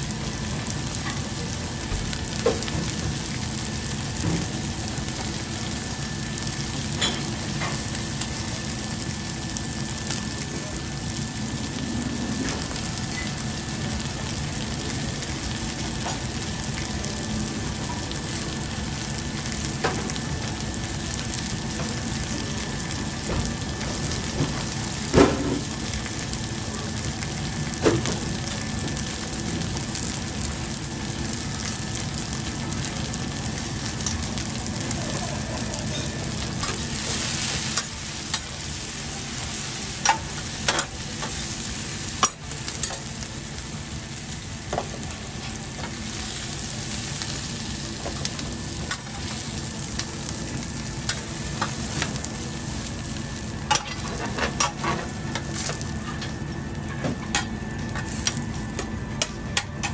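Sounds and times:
food sizzling on a griddle: 0.0s - 59.9s.

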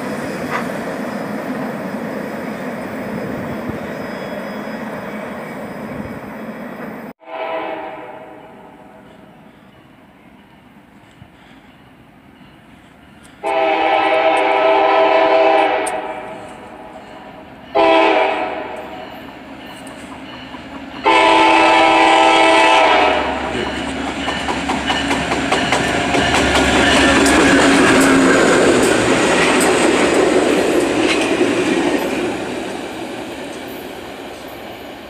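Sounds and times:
locomotive air horn blasts: 7.2s - 8.8s, 13.4s - 16.5s, 17.8s - 19.0s, 21.0s - 23.7s
train wheels clicking over rail joints: 18.7s - 21.3s, 23.5s - 35.0s.

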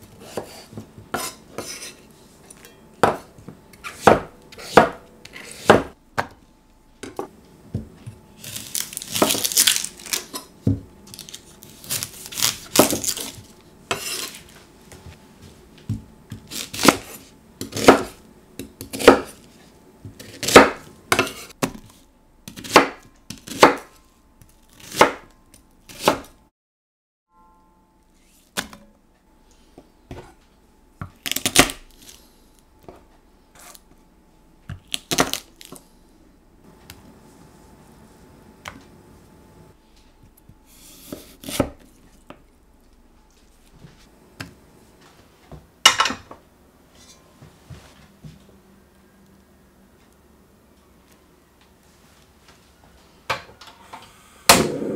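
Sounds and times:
knife chopping on wooden board: 3.0s - 6.4s, 15.9s - 19.4s, 20.1s - 21.9s, 22.5s - 23.9s.

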